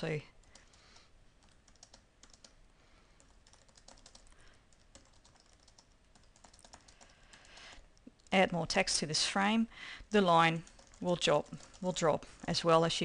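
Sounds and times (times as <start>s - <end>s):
typing on computer keyboard: 0.4s - 2.6s, 3.2s - 8.4s, 10.6s - 12.2s.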